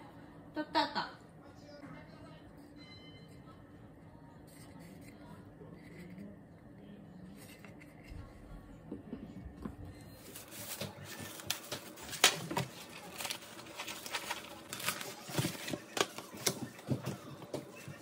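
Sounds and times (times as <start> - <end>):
plastic cling wrap crinkling: 10.2 - 17.2.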